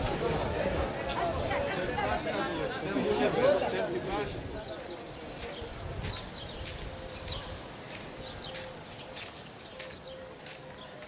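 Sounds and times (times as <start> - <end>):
small birds chirping: 4.2 - 11.0.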